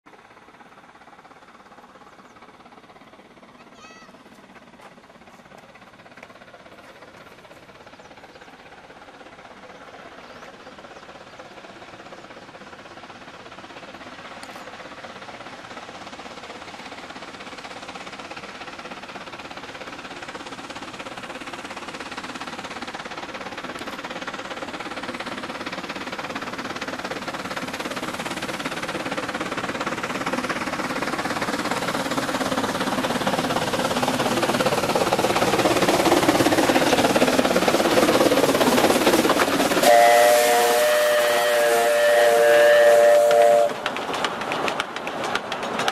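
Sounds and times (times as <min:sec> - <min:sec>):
steam locomotive exhaust beat: 0:00.1 - 0:45.9.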